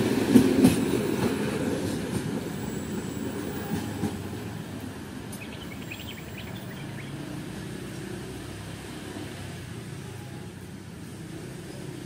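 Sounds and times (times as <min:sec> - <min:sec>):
passing train rumble: 0:00.0 - 0:12.0
bird-like chirps: 0:05.4 - 0:07.3.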